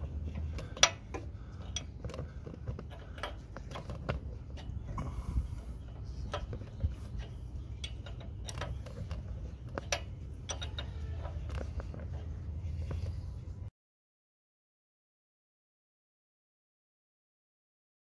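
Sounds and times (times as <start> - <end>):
low steady rumble: 0.0 - 13.7
wrench clinking on bolt: 0.3 - 1.9, 6.2 - 12.3.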